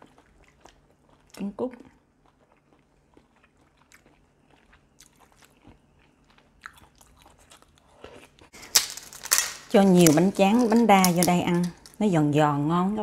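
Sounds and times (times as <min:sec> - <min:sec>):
person chewing noodles: 0:00.0 - 0:08.6.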